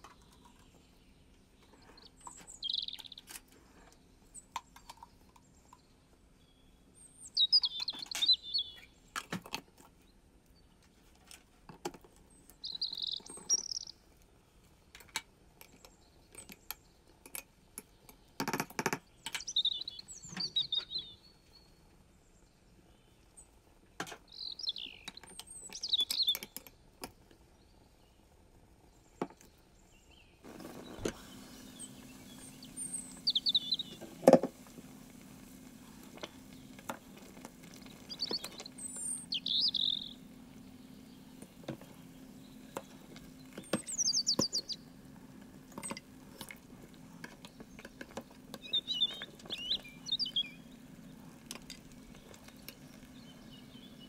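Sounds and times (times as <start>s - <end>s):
small bird chirping: 0.0s - 9.2s, 12.2s - 14.1s, 17.7s - 23.6s, 24.2s - 26.8s, 28.9s - 54.0s
steady low hum: 30.4s - 54.0s.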